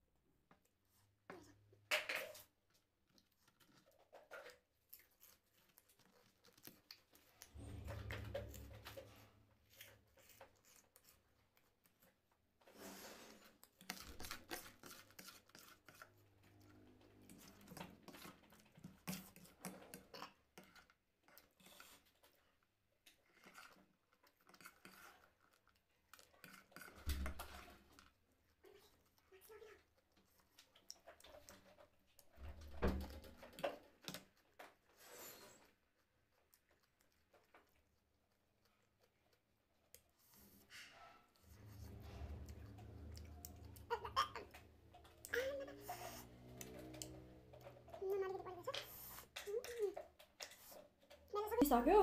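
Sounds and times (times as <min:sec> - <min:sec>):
chewing and crunching snacks: 0:02.1 - 0:07.9, 0:13.4 - 0:32.3, 0:33.4 - 0:40.6.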